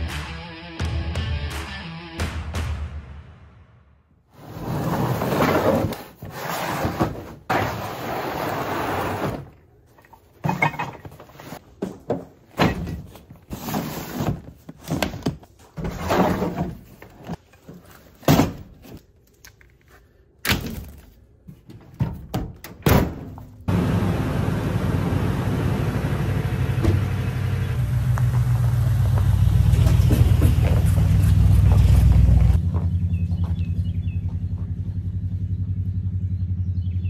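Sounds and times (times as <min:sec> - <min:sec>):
plastic totes scraping: 0:04.4 - 0:19.0.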